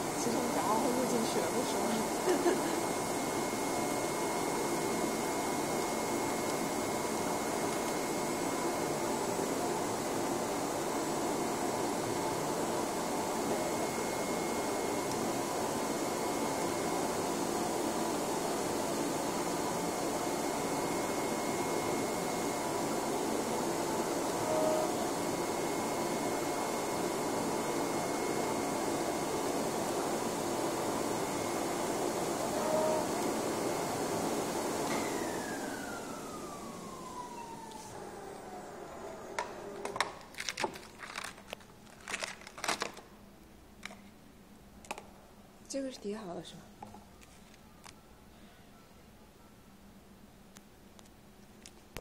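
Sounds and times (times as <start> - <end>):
faint high whine: 0.0 - 40.1
blower spinning down: 0.0 - 41.0
cutting plotter running: 0.0 - 42.9.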